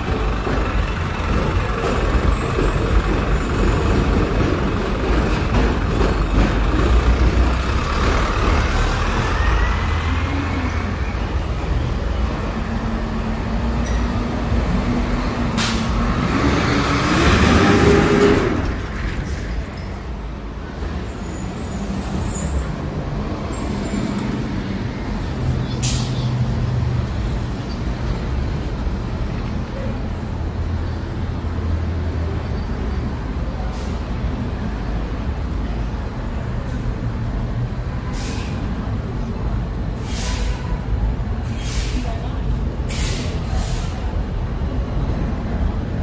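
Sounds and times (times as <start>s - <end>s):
heavy vehicle engine running: 0.0s - 19.8s
road traffic: 0.0s - 46.0s
loud air hiss: 42.9s - 44.0s.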